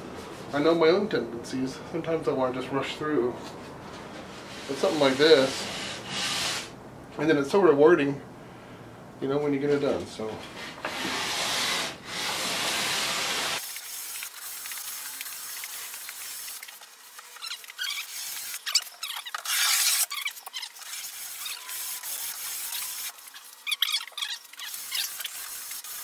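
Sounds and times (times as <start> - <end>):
sandpaper rubbing on wood: 4.4 - 6.7, 10.8 - 26.0.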